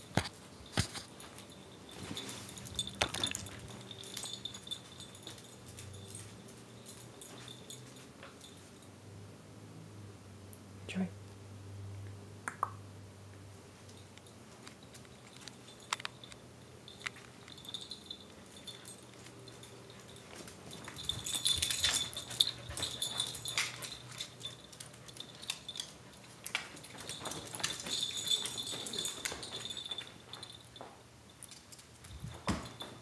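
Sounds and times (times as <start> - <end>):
dog claws clicking on floor: 0.0 - 1.5, 13.9 - 33.0
collar jingling: 0.0 - 8.9, 13.9 - 33.0.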